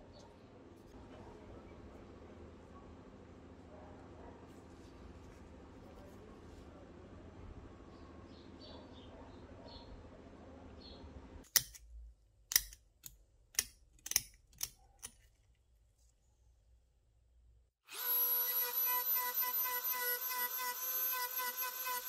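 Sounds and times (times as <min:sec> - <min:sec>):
metal clicks and taps: 0:11.4 - 0:11.9, 0:12.5 - 0:15.3
small electric power tool whining: 0:17.8 - 0:22.0.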